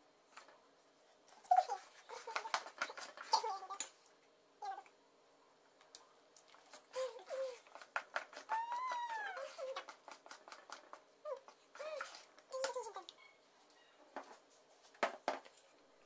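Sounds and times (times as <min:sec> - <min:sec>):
spoon stirring batter in metal bowl: 0:06.4 - 0:13.2.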